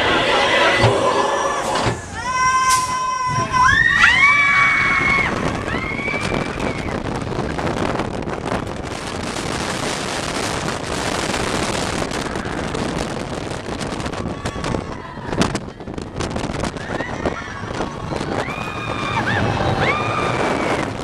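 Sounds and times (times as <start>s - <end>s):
roller coaster rumbling on track: 0.0s - 21.0s
wind on microphone: 0.0s - 21.0s.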